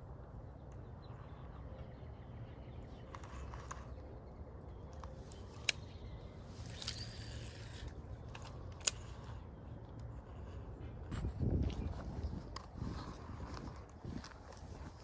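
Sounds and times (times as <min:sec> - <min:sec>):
low steady rumble: 0:00.0 - 0:15.0
fishing reel clicks: 0:05.3 - 0:09.4
fishing reel whirring: 0:05.4 - 0:09.4.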